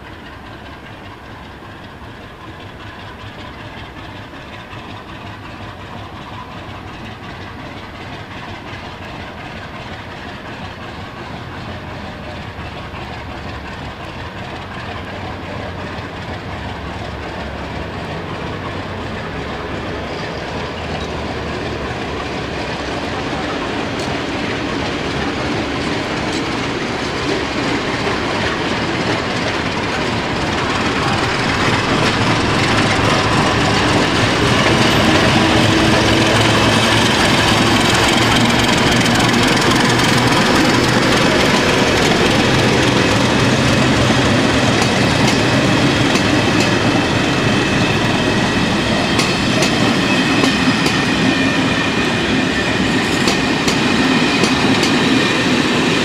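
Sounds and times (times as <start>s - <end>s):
diesel locomotive engine drone: 0.0s - 56.0s
train wheels clickety-clack: 0.0s - 56.0s
high wheel squeal: 19.8s - 21.4s, 29.3s - 56.0s.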